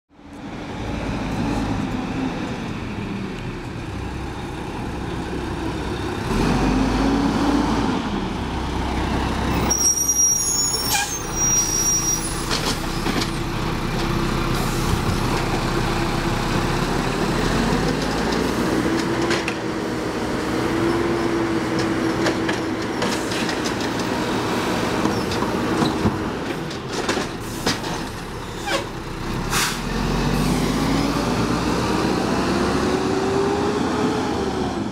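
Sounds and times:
truck diesel engine revving: 0:05.2 - 0:22.8, 0:29.0 - 0:34.9.

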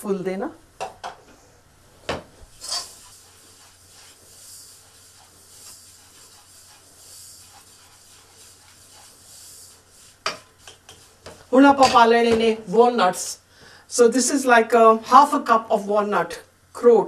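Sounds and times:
flour sizzling in a pot: 0:02.3 - 0:12.1
spatula scraping: 0:02.4 - 0:12.2
spatula knocking: 0:10.0 - 0:12.6.

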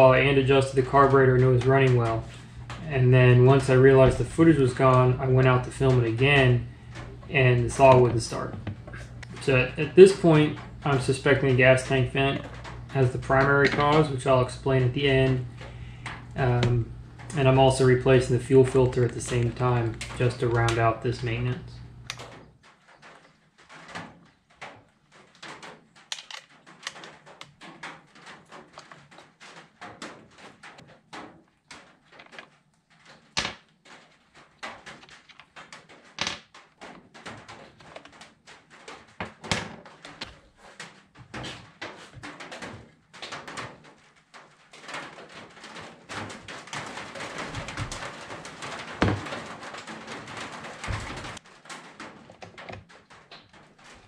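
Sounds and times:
tools clicking on wooden workbench: 0:26.1 - 0:27.5
scraping and rattling: 0:36.8 - 0:54.0.

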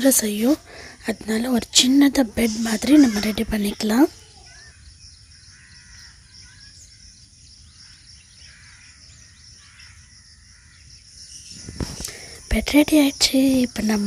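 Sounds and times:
faint high-pitched hiss: 0:00.0 - 0:07.9, 0:11.0 - 0:14.0
faint bird calls: 0:00.0 - 0:14.0
low background noise: 0:00.0 - 0:14.0.

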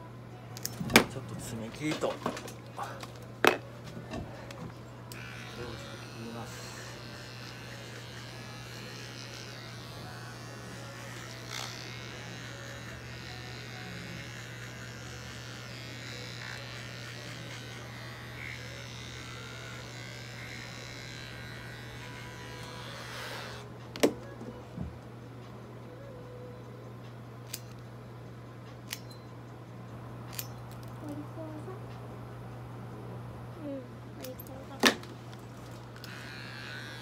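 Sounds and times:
pet trimmer buzzing: 0:05.1 - 0:23.7, 0:35.6 - 0:37.0.

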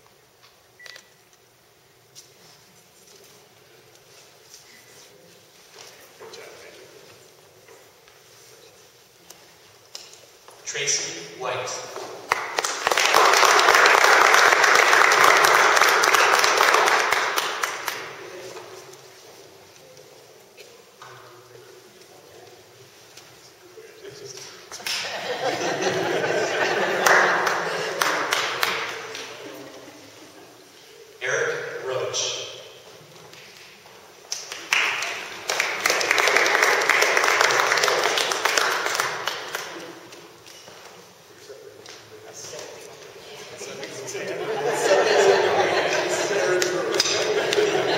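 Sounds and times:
audience clapping: 0:11.9 - 0:18.2, 0:26.2 - 0:29.6, 0:34.3 - 0:40.3, 0:45.2 - 0:47.9
people applauding: 0:12.2 - 0:18.2, 0:26.2 - 0:29.6, 0:34.3 - 0:40.2, 0:44.8 - 0:47.9.

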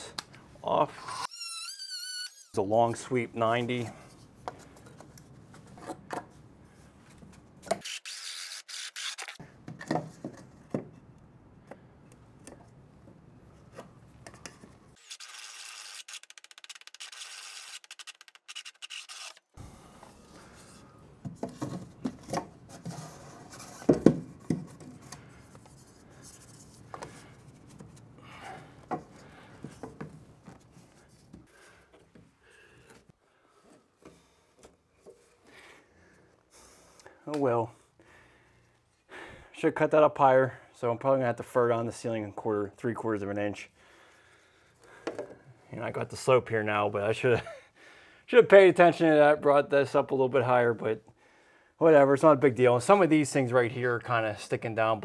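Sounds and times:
multi-tool cutting plastic pipe: 0:15.0 - 0:19.6.

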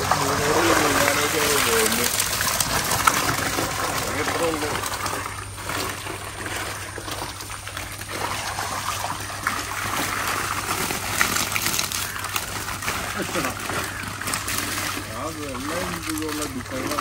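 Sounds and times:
water running and splashing: 0:00.0 - 0:17.0.

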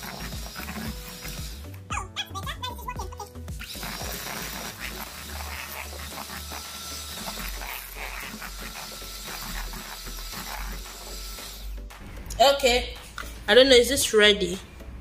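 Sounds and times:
beaters churning batter in metal bowl: 0:00.0 - 0:01.7, 0:03.6 - 0:11.2
electric hand mixer running: 0:00.0 - 0:01.9, 0:03.6 - 0:12.0.

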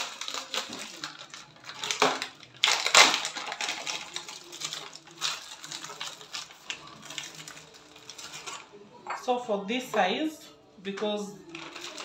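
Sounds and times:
plastic packet crinkling: 0:00.0 - 0:08.8, 0:11.4 - 0:12.0.

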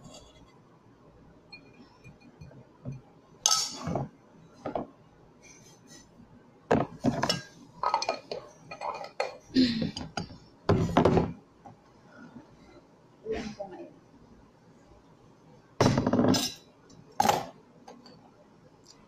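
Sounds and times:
metal spoon scraping glass container: 0:00.0 - 0:00.5
dishes clattering: 0:01.6 - 0:04.9, 0:06.7 - 0:11.4, 0:15.8 - 0:18.2.

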